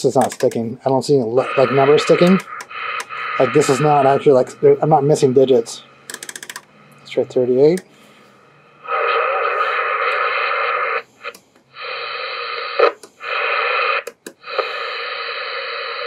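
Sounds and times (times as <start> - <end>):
radio static hiss: 0.0 - 6.1, 8.5 - 16.0
radio control clicks: 2.4 - 3.8, 11.2 - 11.7, 14.0 - 14.7.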